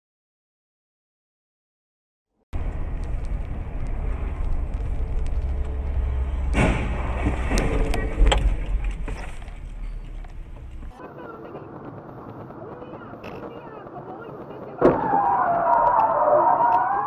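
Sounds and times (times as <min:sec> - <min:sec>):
clatter of flying debris: 0:02.6 - 0:16.1
car road rumble from inside: 0:02.6 - 0:17.0
sharp bangs: 0:06.0 - 0:16.9
car collision crash: 0:06.3 - 0:09.6.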